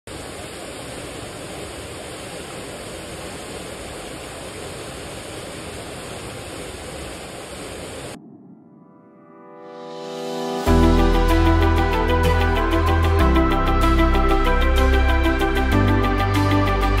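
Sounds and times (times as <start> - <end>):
waterfall pouring into pool: 0.1 - 8.2.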